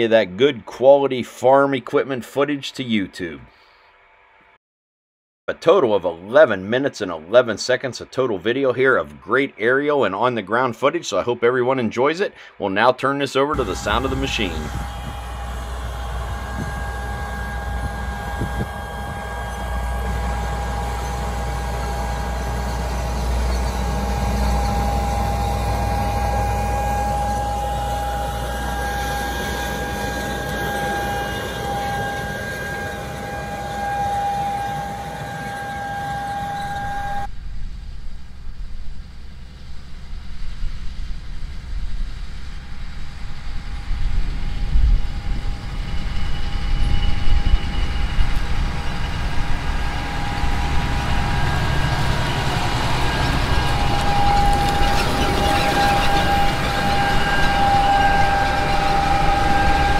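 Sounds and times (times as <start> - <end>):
steady high whine: 13.5 - 59.9
diesel tractor engine under load: 13.6 - 37.3, 41.4 - 59.9.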